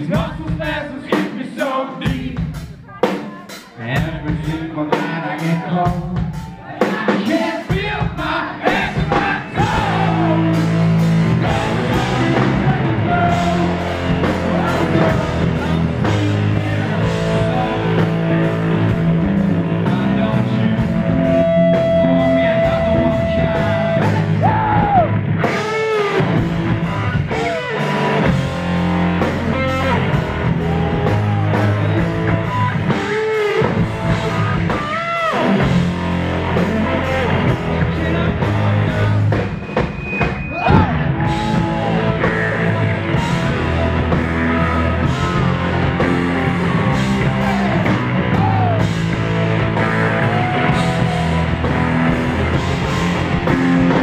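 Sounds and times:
man singing: 0.0s - 25.8s, 36.6s - 39.5s
drums: 0.0s - 54.0s
electric guitar: 8.7s - 39.9s, 40.6s - 54.0s.

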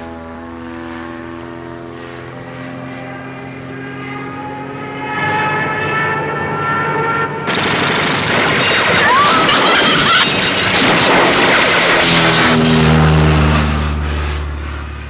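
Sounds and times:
propeller plane engine droning: 0.0s - 15.0s
machine-gun fire: 7.5s - 12.4s
explosions: 7.5s - 13.6s.

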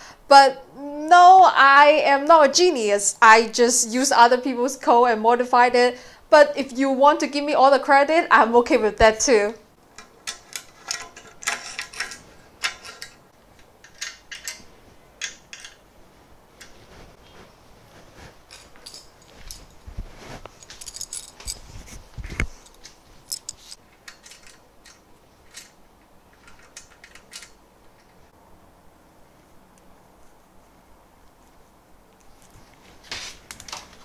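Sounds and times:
metal parts clinking on metal frame: 9.9s - 15.8s, 18.5s - 19.8s, 20.5s - 21.8s, 22.6s - 28.2s.

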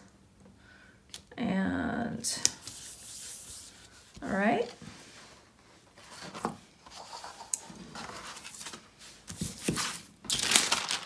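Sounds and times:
paper rubbing and sliding: 2.6s - 4.1s.

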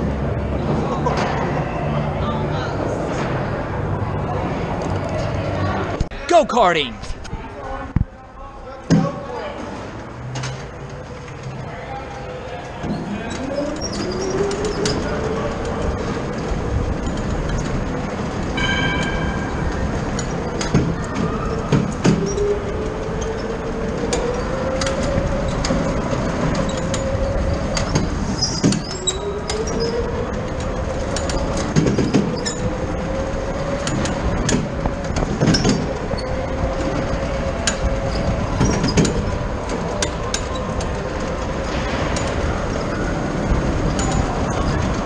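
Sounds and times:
kart rumble and rattle: 0.0s - 6.1s, 7.0s - 45.0s
go-kart motor running: 9.4s - 45.0s.

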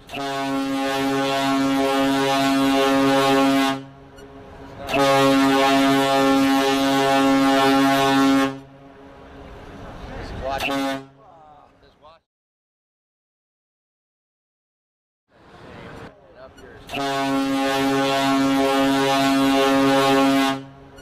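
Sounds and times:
deep ship horn blasts: 0.0s - 9.8s, 10.4s - 11.2s, 16.9s - 21.0s.

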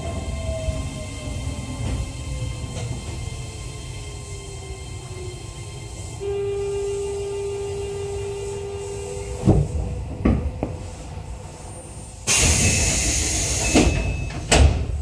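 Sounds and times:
train running gear whine: 0.0s - 15.0s
train doors sliding open with hiss: 6.9s - 15.0s
train car clunks: 9.3s - 10.8s, 12.3s - 15.0s.

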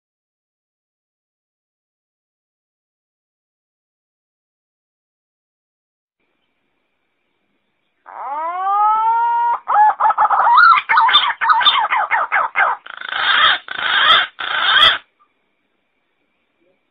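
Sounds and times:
pigeon calling: 8.1s - 15.1s.

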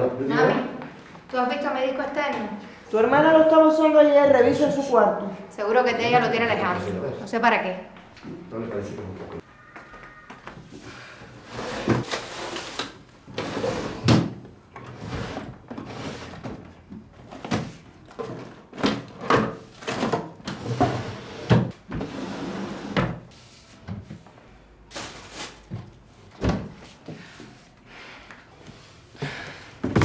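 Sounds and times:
wooden drawers opening and shutting: 11.5s - 23.3s.

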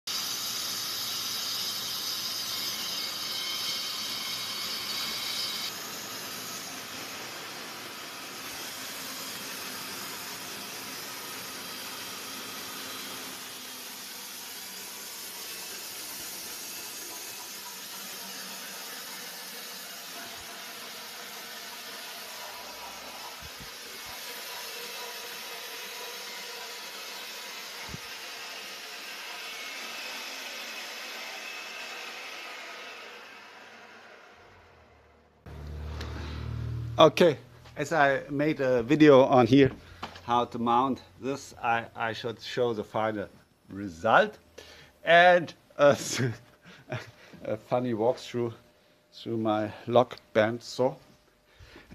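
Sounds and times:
sawmill steady hiss: 0.1s - 36.4s, 37.0s - 48.6s
high saw whine: 0.1s - 39.4s.

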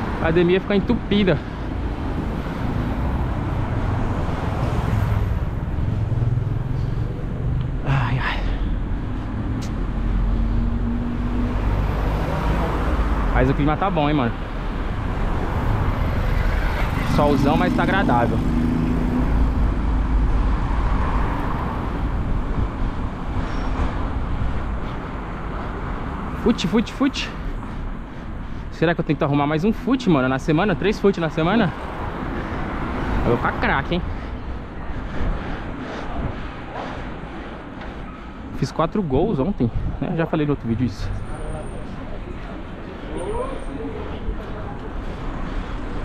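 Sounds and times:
passing cars: 0.0s - 46.0s
road noise rushing: 0.0s - 46.0s
wind rumble on microphone: 19.0s - 24.8s.

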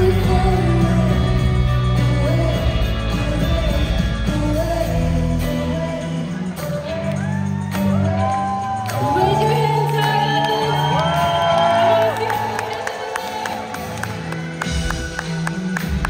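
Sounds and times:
woman singing into microphone: 0.0s - 6.4s
indie pop band playing: 0.0s - 16.0s.

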